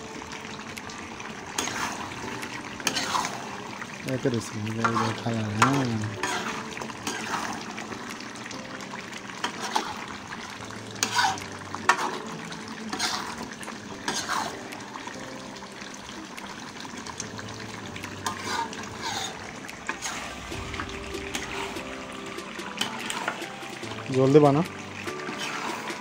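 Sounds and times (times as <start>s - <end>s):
curry sizzling: 0.0s - 26.0s
spatula scraping metal pan: 1.6s - 2.1s, 2.8s - 3.5s, 4.8s - 7.8s, 9.4s - 10.1s, 11.0s - 14.7s, 18.2s - 20.6s, 22.7s - 23.6s, 25.1s - 26.0s.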